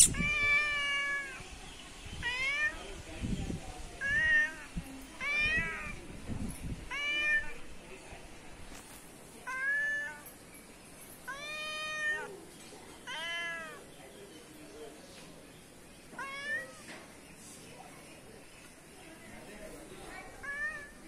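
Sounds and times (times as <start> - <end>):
cat meowing: 0.0 - 1.4, 2.2 - 2.8, 4.0 - 6.0, 6.9 - 7.6, 9.5 - 10.2, 11.3 - 12.3, 13.0 - 13.8, 16.2 - 16.9, 20.4 - 21.0.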